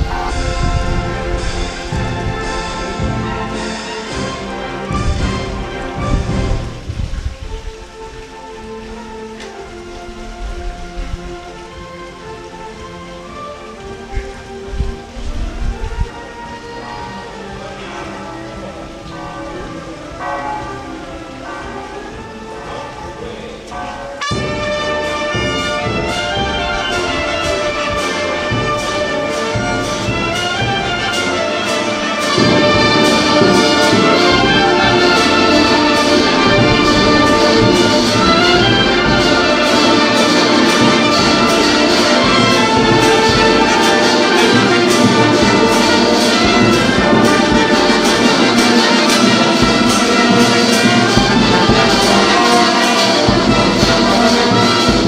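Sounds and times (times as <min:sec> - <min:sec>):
steady drum beat: 0:00.0 - 0:08.4, 0:24.2 - 0:55.0
marching brass band playing: 0:00.0 - 0:55.0.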